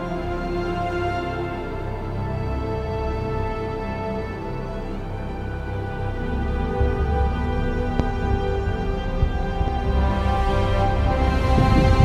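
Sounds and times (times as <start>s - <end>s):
brooding soundtrack chords: 0.0s - 12.0s
deep low pulse: 5.7s - 12.0s.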